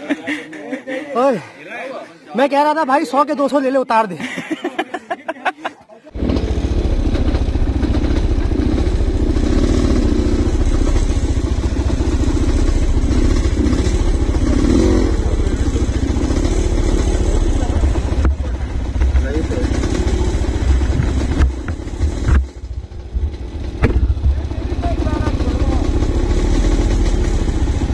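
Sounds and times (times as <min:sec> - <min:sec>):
motorcycle engine running: 0:06.1 - 0:27.9.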